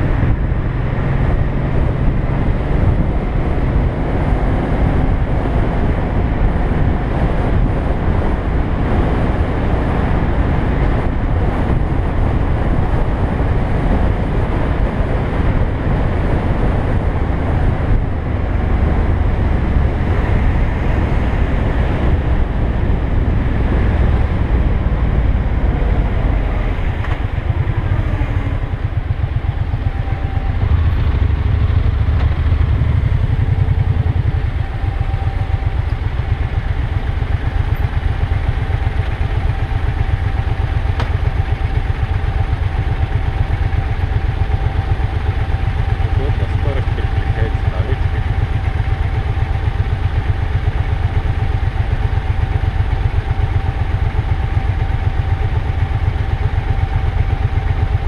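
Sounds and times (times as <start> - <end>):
motorcycle engine running: 0.0 - 58.0
road and wind rumble: 0.0 - 58.0.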